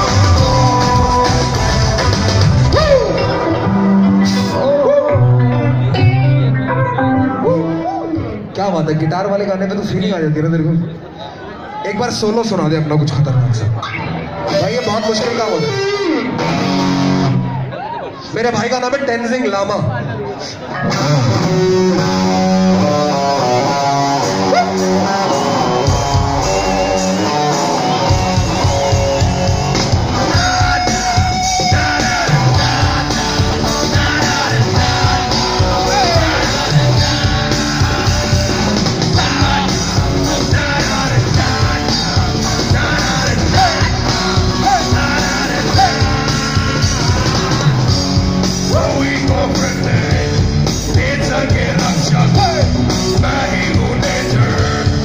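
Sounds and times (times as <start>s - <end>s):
drums and bass: 0.0s - 8.5s, 13.7s - 17.7s, 20.8s - 55.0s
electric guitar: 0.0s - 8.6s, 13.6s - 18.1s, 20.5s - 55.0s
person shouting vocals: 2.7s - 3.3s.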